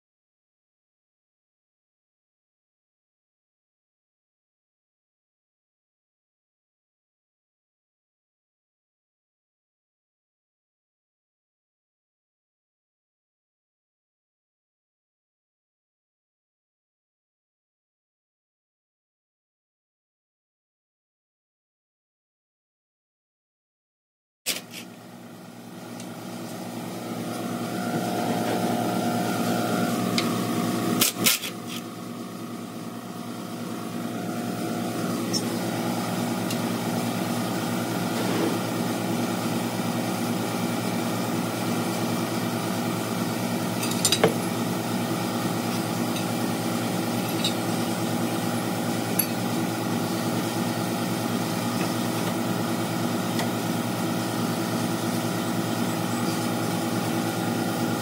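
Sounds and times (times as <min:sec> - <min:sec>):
engine idling: 0:25.3 - 0:58.0.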